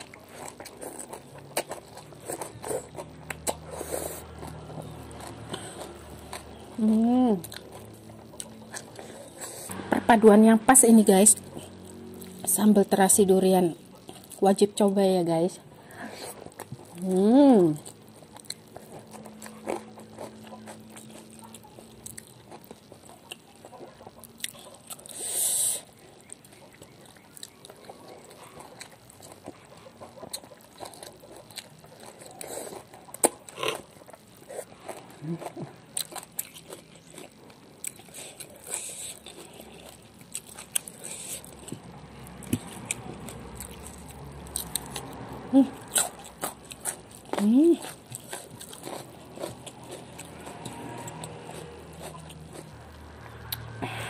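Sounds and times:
person chewing food: 0.0 - 9.8, 11.2 - 14.4, 15.6 - 54.0
wet clicks and crunches: 26.1 - 52.7.

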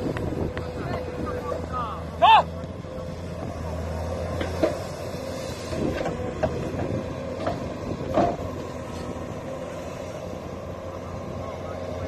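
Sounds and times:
excavator diesel engine running: 0.0 - 12.0
knocks and clunks: 4.3 - 4.9, 5.9 - 8.7.

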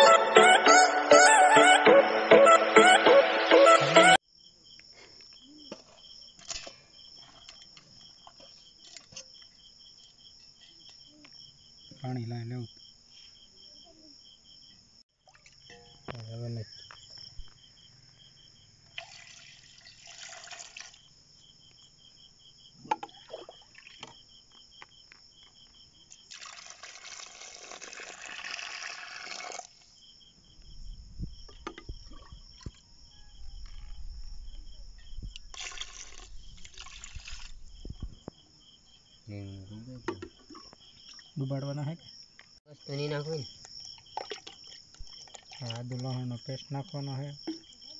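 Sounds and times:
crickets chirping: 4.2 - 47.9
water splashing into a pot: 15.2 - 16.0, 18.9 - 21.0, 22.9 - 24.2, 26.3 - 29.7, 35.5 - 37.7, 44.0 - 46.2.

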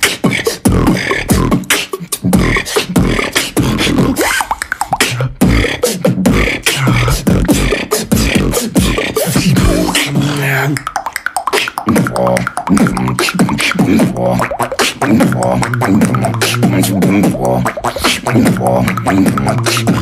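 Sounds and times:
beatboxing: 0.0 - 20.0.

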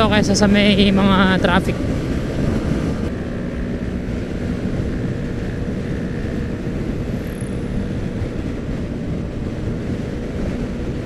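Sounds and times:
scooter engine droning: 0.0 - 11.0
wind rushing over microphone: 0.0 - 11.0.

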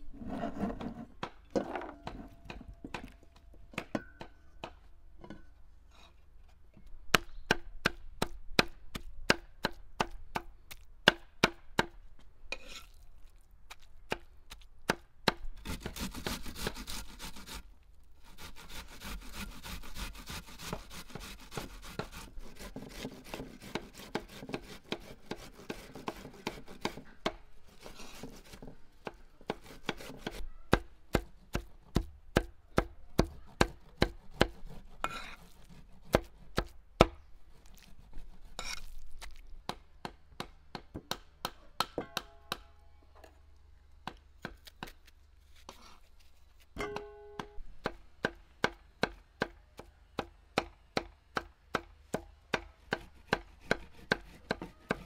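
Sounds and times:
onion rasping on grater: 15.7 - 17.6, 18.2 - 27.0, 37.7 - 39.0.

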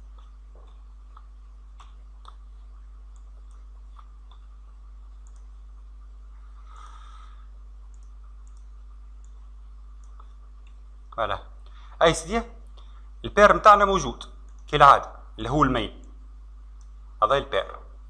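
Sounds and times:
low electrical hum: 0.0 - 18.0
computer mouse clicks: 3.1 - 4.5, 5.1 - 5.6, 7.8 - 10.8.

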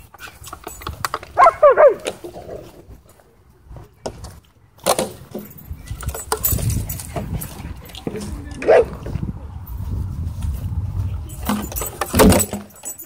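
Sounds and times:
dog yelping: 1.4 - 2.1, 8.6 - 8.9.

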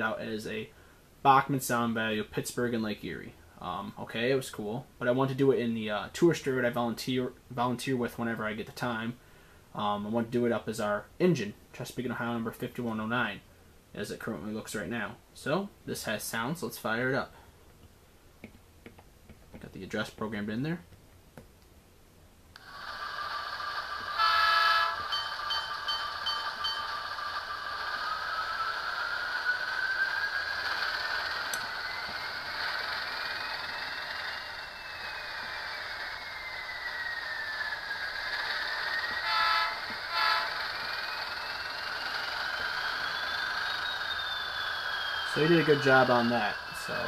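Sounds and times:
whine rising and falling: 0.0 - 9.1, 22.6 - 47.0
model train bell ringing: 23.9 - 27.9, 39.3 - 42.4
model train horn: 24.0 - 25.3, 39.1 - 41.2.

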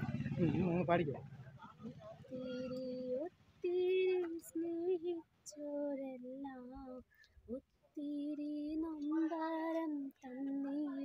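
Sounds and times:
woman singing: 2.3 - 11.0.

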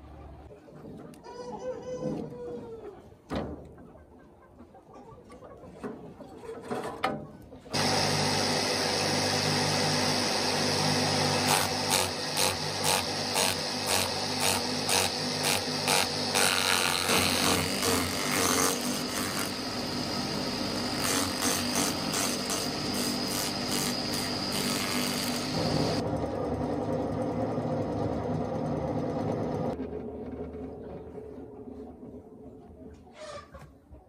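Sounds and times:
chopper motor humming: 7.7 - 29.8.

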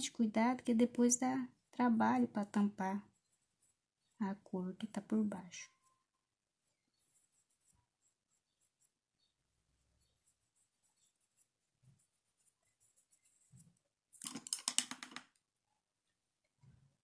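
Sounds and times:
paintbrush scratching on fabric: 0.7 - 13.9.

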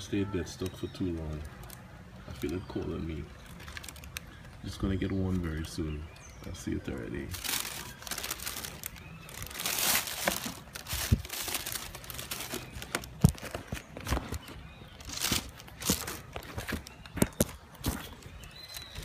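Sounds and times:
tissue paper rustling: 7.3 - 13.6.

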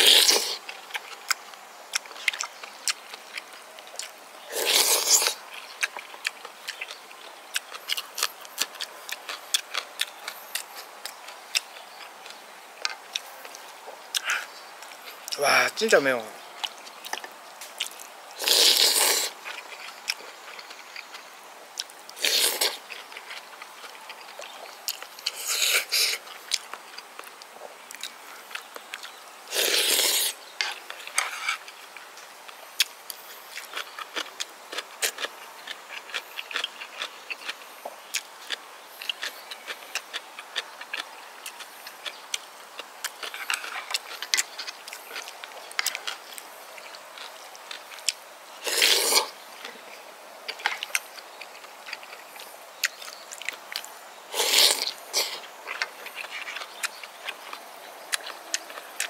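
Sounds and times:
loud slurping of soup: 0.0 - 0.6, 4.5 - 5.4, 18.4 - 19.4, 29.5 - 30.4, 48.6 - 49.4, 54.3 - 55.4
wet chewing: 0.0 - 15.4, 16.0 - 59.0.

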